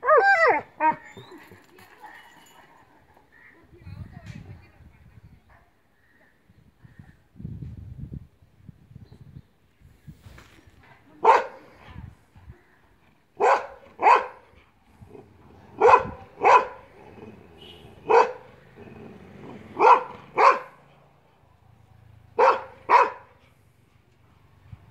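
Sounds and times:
dog barking loudly: 11.2 - 11.6, 13.4 - 14.4, 15.7 - 20.9, 22.3 - 23.4.

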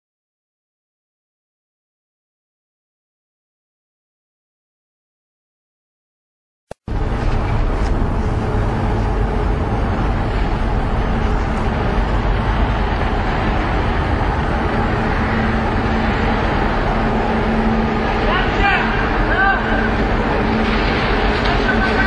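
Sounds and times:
ferry engines and water: 6.8 - 22.0
faint low drone: 6.9 - 22.0.

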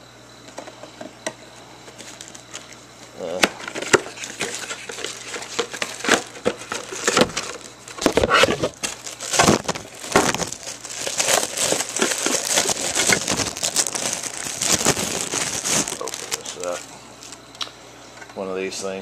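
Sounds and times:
plastic packaging crinkling: 3.6 - 17.4.

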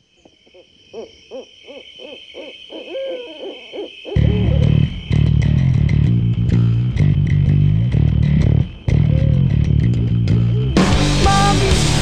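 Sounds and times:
owl hooting: 0.2 - 5.2, 8.8 - 11.8
rock music: 4.2 - 12.0.

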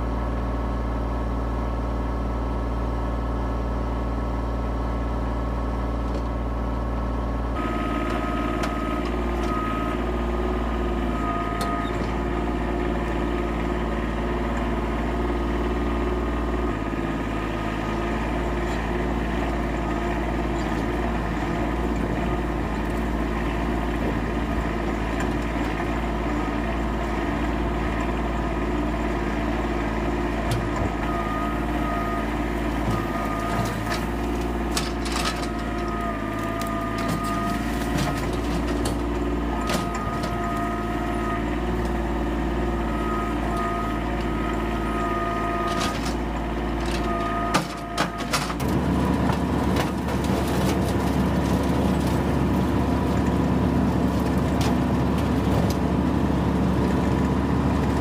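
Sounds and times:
tractor engine running: 0.0 - 58.0.

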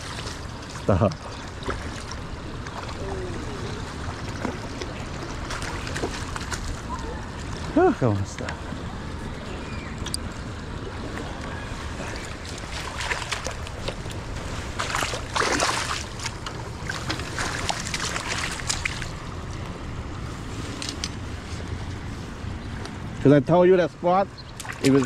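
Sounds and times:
river flowing: 0.0 - 23.3
wind: 0.0 - 25.0.

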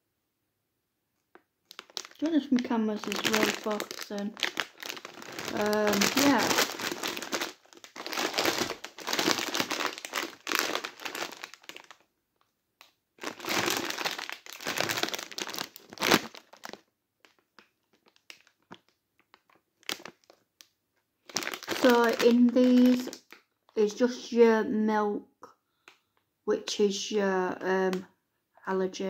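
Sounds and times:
plastic crisp packet crinkling: 1.6 - 12.0, 13.2 - 23.8.

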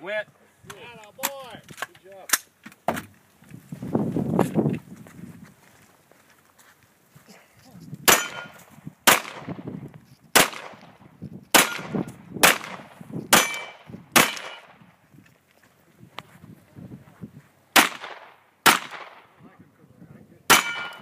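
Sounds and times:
handgun shots with echo: 8.1 - 9.6, 10.4 - 10.9, 11.5 - 14.8, 17.8 - 19.3, 20.5 - 21.0.

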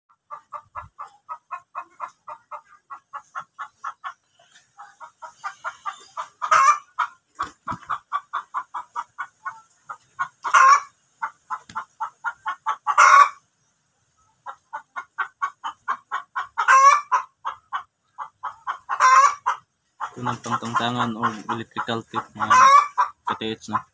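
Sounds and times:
chicken clucking: 0.1 - 23.9
chicken squawking: 0.3 - 13.4, 14.3 - 23.9.

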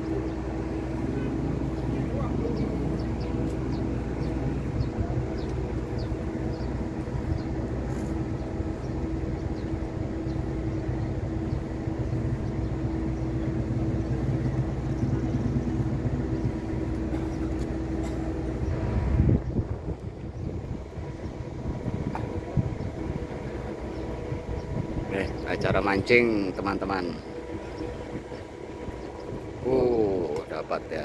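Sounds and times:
constant humming tone: 0.0 - 31.0
ship machinery droning: 0.0 - 31.0.

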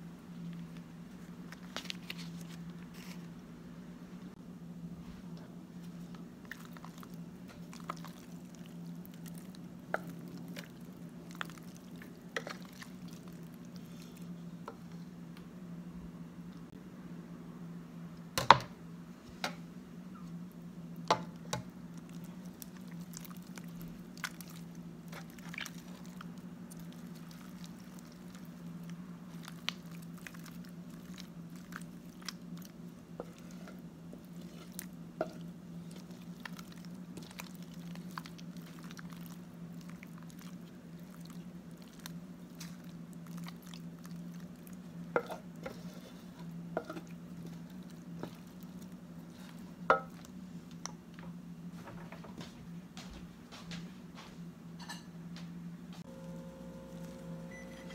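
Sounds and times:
steady low hum: 0.0 - 57.9
wet squishing and scraping: 0.4 - 3.4, 5.8 - 15.1, 21.3 - 51.2.

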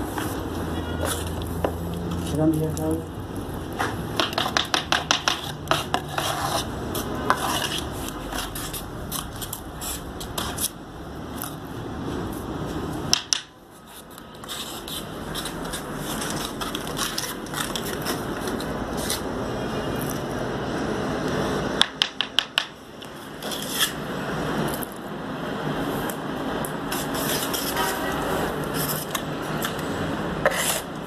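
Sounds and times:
trowel scraping mortar on stone: 0.9 - 2.4, 3.8 - 10.8, 13.8 - 19.3, 23.4 - 24.0, 26.9 - 29.8, 30.4 - 31.0
trowel tapping: 3.8 - 10.7, 21.8 - 22.8.

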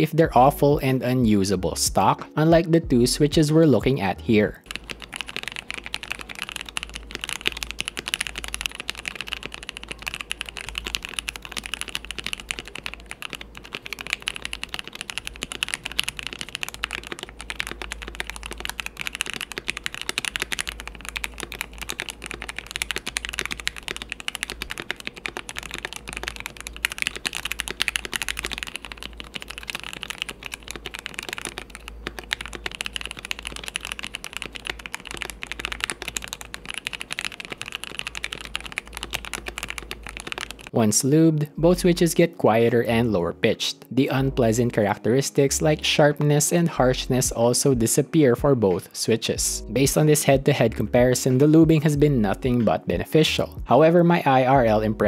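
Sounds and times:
fast typing on mechanical keyboard: 4.6 - 40.8, 49.9 - 53.1.

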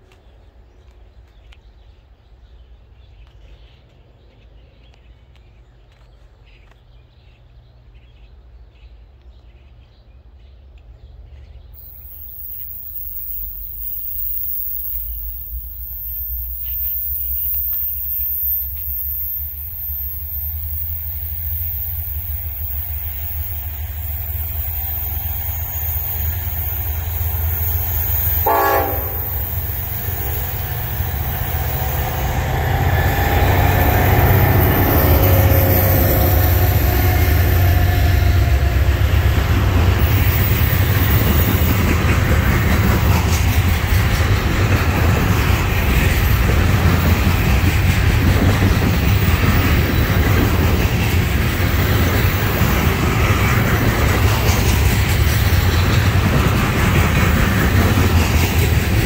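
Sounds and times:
locomotive engine rumble: 11.8 - 59.0
train wheels clattering on rails: 11.8 - 59.0
train horn blast: 28.4 - 30.4.

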